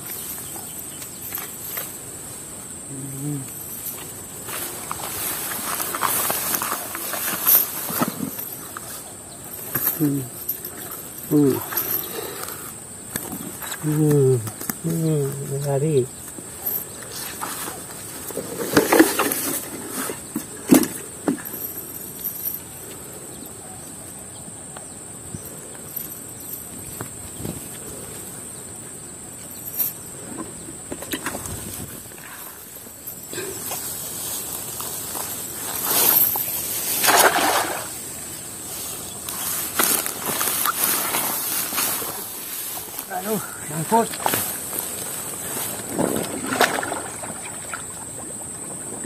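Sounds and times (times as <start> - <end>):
water splashing and sloshing: 36.0 - 38.1, 44.0 - 49.0.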